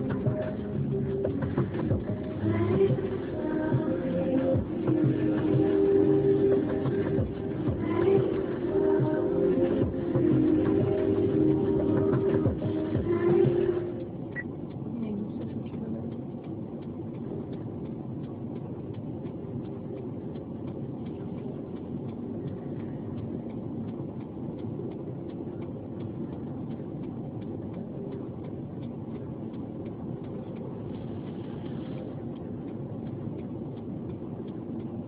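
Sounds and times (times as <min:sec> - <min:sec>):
music: 0:00.0 - 0:14.4
car engine idling: 0:00.0 - 0:35.0
faint regular ticking: 0:00.0 - 0:35.0.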